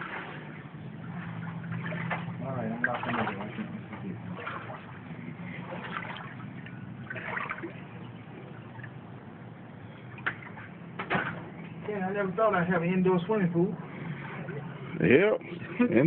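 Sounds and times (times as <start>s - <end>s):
footsteps splashing in water: 0.0s - 8.0s
floodwater sloshing: 0.0s - 16.0s.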